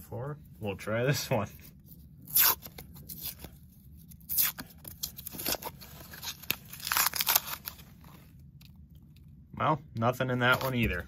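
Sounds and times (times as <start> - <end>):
paper wrapper tearing: 2.2 - 8.0.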